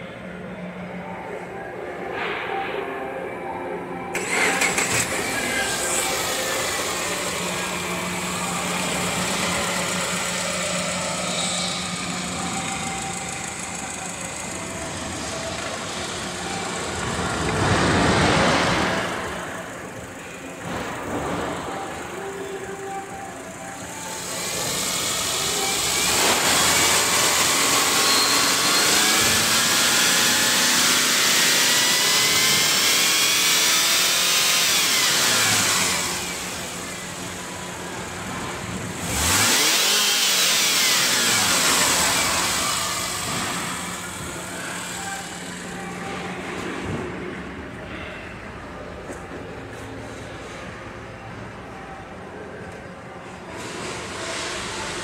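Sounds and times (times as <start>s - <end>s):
car engine idling and revving: 4.0s - 55.0s.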